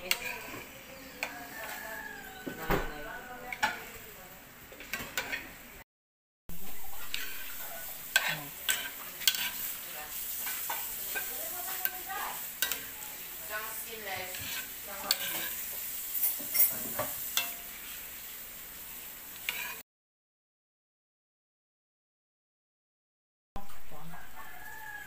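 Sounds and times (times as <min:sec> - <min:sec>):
metal spoon scraping a pan: 0:00.0 - 0:02.5, 0:03.5 - 0:04.0, 0:04.8 - 0:05.6, 0:06.6 - 0:18.3, 0:19.4 - 0:19.8
food sizzling in a pan: 0:00.0 - 0:05.8, 0:06.5 - 0:19.8, 0:23.6 - 0:25.0.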